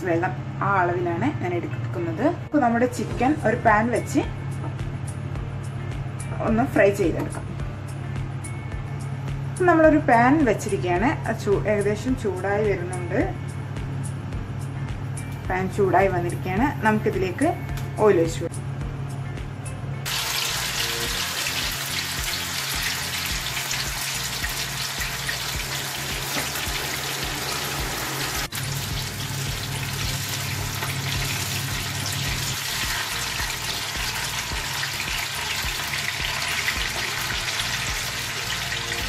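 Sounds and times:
chicken sizzling in hot oil: 0:20.1 - 0:39.0.

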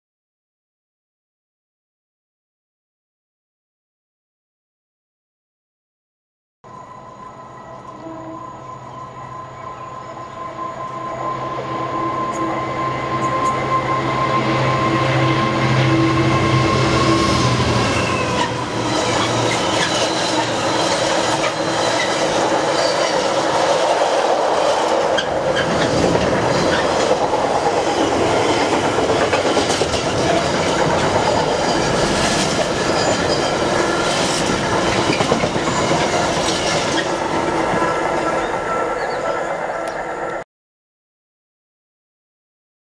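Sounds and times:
diesel locomotive engine drone: 0:06.7 - 0:40.4.

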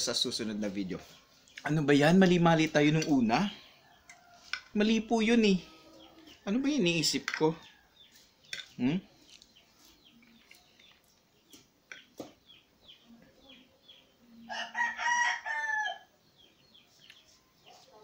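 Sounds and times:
small birds chirping: 0:00.0 - 0:18.0
rooster crowing: 0:14.4 - 0:16.1.

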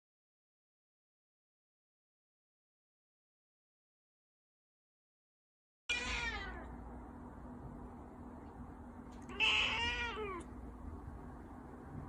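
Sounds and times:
cat meowing: 0:05.9 - 0:06.7, 0:09.2 - 0:10.5.

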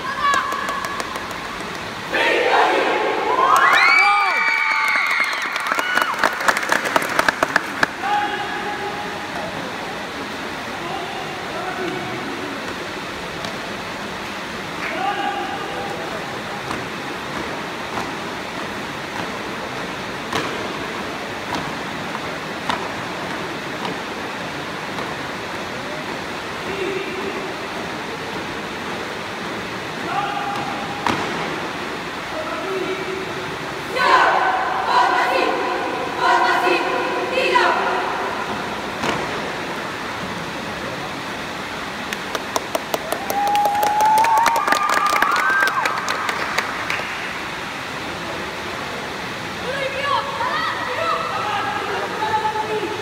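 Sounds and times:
crowd murmur echoing: 0:00.0 - 0:04.4, 0:05.3 - 0:43.1
scattered clapping: 0:00.2 - 0:01.9, 0:04.8 - 0:08.0, 0:42.1 - 0:47.4
hall noise hiss: 0:07.0 - 0:43.6.

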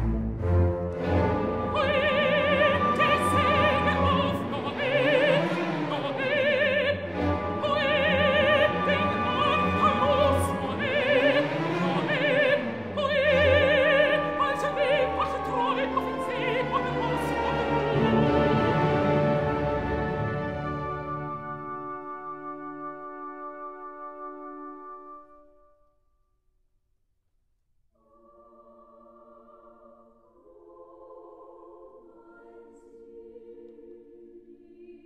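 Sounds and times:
full orchestra: 0:00.0 - 0:25.7
operatic soprano singing: 0:01.1 - 0:21.8, 0:28.0 - 0:35.0.

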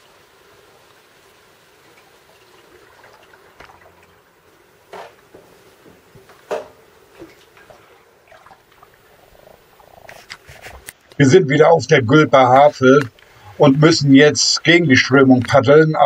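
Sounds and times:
paddle splashing in water: 0:02.3 - 0:04.2, 0:06.6 - 0:09.1.

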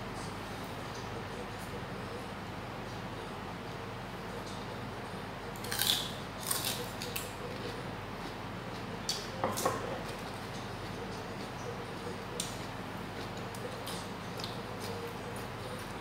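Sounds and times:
steady low hum: 0:00.0 - 0:16.0
crunching lettuce stalk: 0:05.6 - 0:07.4.

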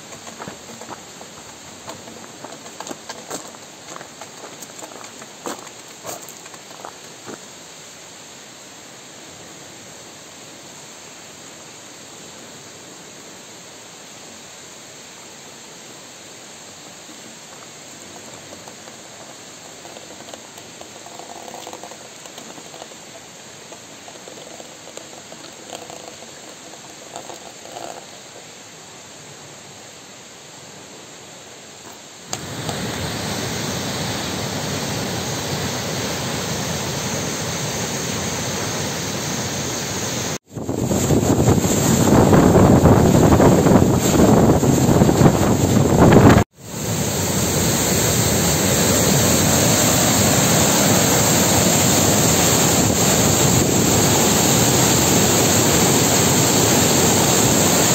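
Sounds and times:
steady hiss: 0:00.0 - 0:57.9
stream rushing over weir: 0:32.3 - 0:57.9.

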